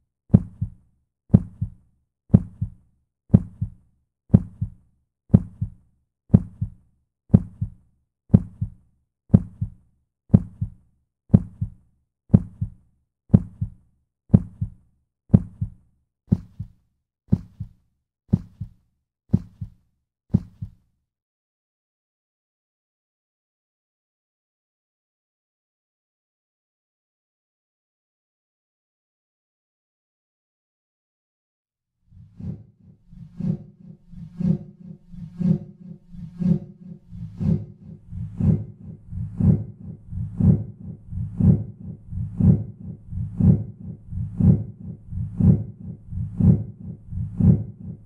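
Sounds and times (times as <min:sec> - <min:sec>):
heartbeat thumping: 0:00.3 - 0:20.8, 0:36.6 - 0:48.0.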